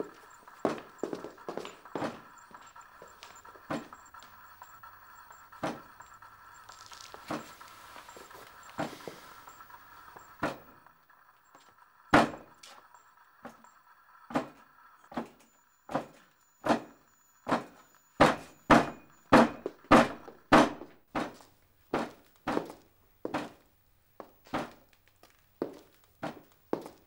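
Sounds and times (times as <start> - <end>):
faint steady hum: 0.0 - 27.0
sharp knocks: 15.1 - 22.6.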